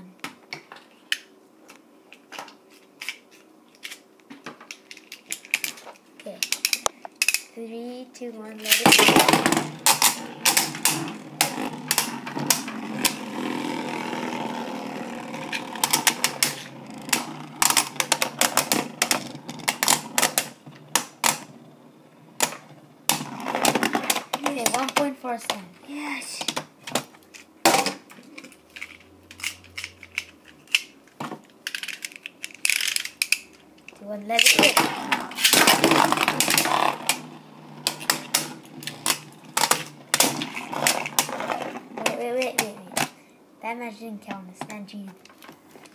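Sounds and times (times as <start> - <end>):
spinning tops clashing clacks: 8.6 - 21.5
spinning tops whirring: 8.6 - 24.9.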